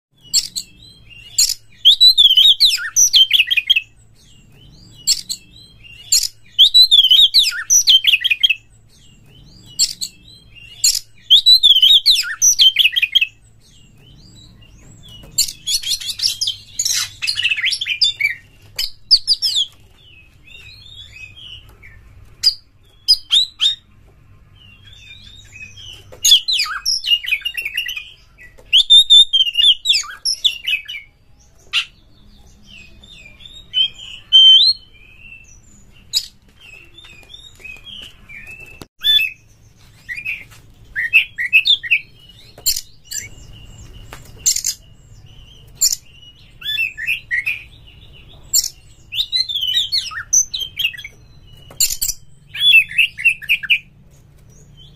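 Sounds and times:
bird singing whistles and chatter: 0:04.6 - 0:08.6.

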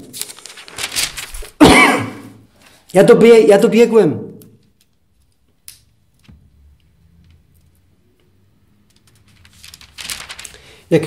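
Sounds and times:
paper rustling: 0:00.0 - 0:01.6, 0:08.8 - 0:11.0.

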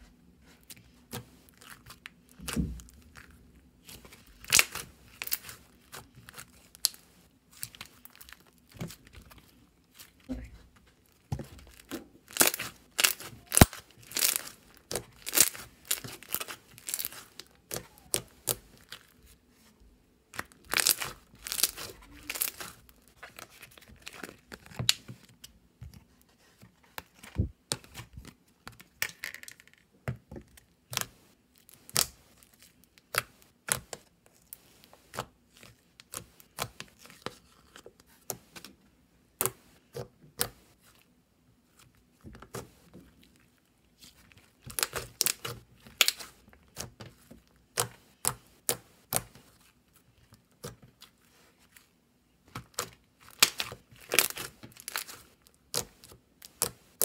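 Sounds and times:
slime crackling and popping: 0:01.6 - 0:09.2, 0:11.7 - 0:19.0, 0:20.3 - 0:23.0, 0:44.6 - 0:47.0, 0:52.5 - 0:57.0.

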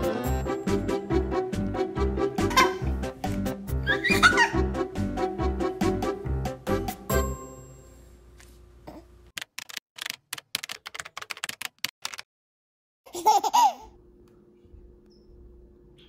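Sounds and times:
background music: 0:00.0 - 0:07.6
baby squealing: 0:03.8 - 0:04.6.

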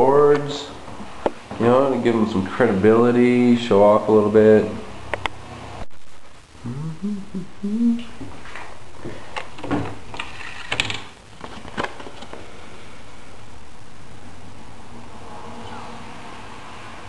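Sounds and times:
person humming: 0:06.6 - 0:08.2.

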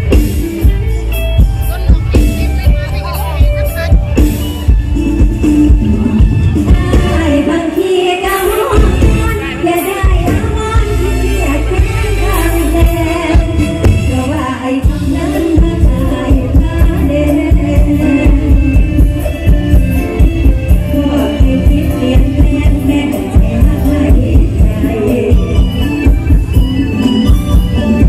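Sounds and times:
band playing over loud pa: 0:00.0 - 0:28.0
heavy bass and drum beat: 0:00.0 - 0:28.0
woman singing: 0:06.5 - 0:26.1.

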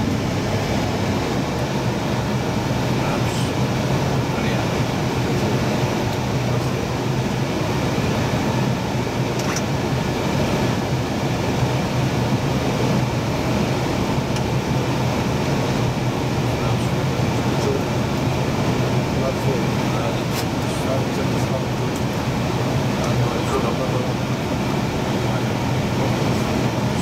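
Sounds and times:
low hum: 0:00.0 - 0:09.4.

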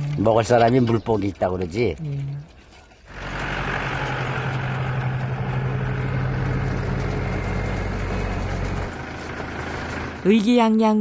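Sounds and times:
engine running with low hum: 0:02.4 - 0:10.5.

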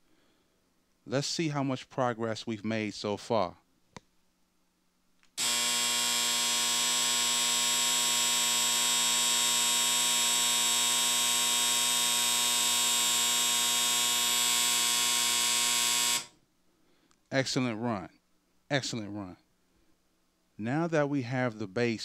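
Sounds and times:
electric game board buzzing: 0:05.4 - 0:16.4.

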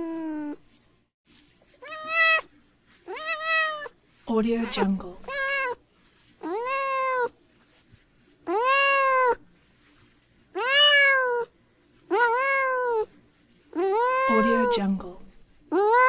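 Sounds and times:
cat meowing: 0:01.8 - 0:02.5, 0:03.1 - 0:03.9, 0:04.7 - 0:05.8, 0:06.4 - 0:07.4, 0:08.5 - 0:09.4, 0:10.6 - 0:11.5, 0:12.1 - 0:13.1, 0:13.8 - 0:14.8, 0:15.7 - 0:16.0.

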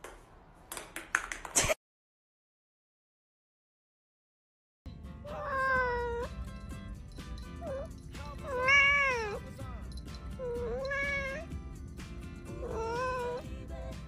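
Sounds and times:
background music: 0:04.9 - 0:14.0
cat meowing: 0:05.2 - 0:06.4, 0:07.6 - 0:09.5, 0:10.4 - 0:11.6, 0:12.5 - 0:13.5.

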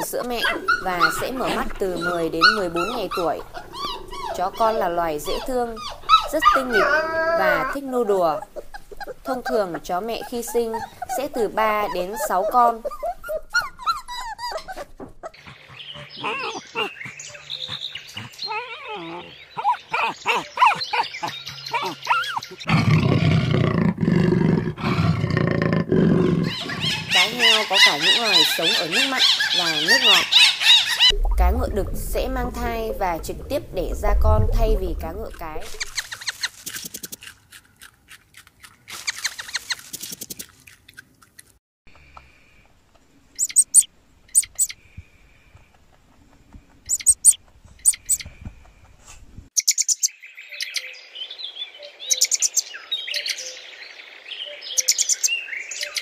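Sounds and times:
puppies whimpering and yipping: 0:00.0 - 0:22.6
rabbit crunching carrot: 0:35.9 - 0:41.6.

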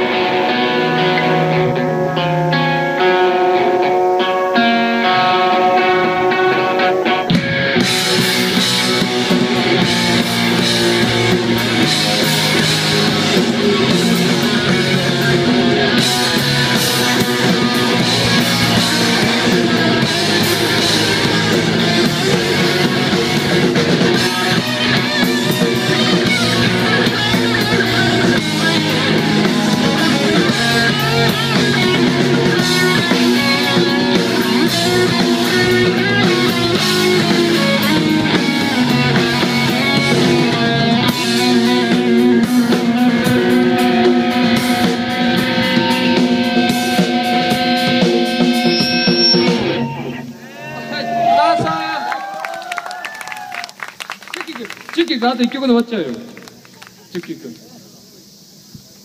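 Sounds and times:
electric guitars: 0:00.0 - 0:59.0
drum kit: 0:05.7 - 0:51.9.

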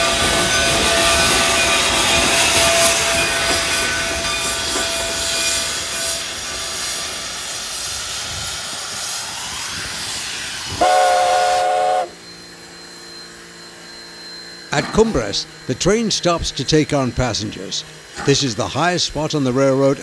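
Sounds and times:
steam locomotive hissing: 0:00.0 - 0:20.0
steam whistle blast: 0:10.6 - 0:15.4.

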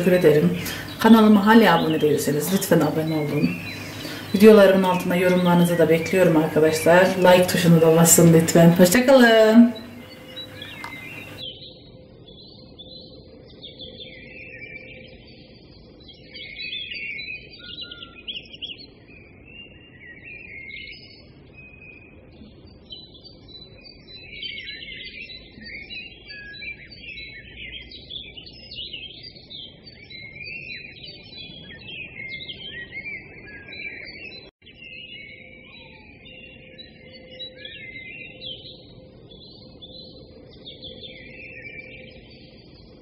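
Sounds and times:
faint low hiss: 0:00.0 - 0:11.4
birds chirping and singing: 0:00.0 - 0:15.4, 0:16.0 - 0:43.0.

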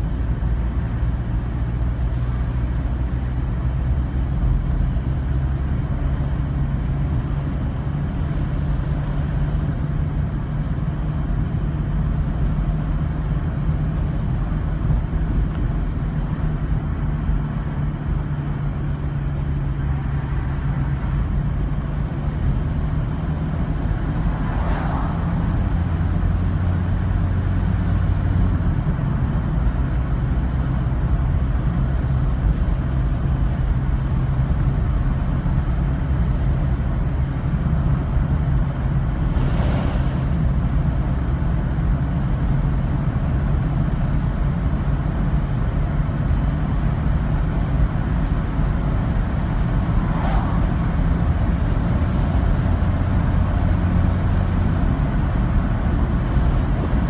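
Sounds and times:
car engine and road noise: 0:00.0 - 0:57.0
brief whooshes: 0:39.3 - 0:40.4, 0:50.0 - 0:50.8.

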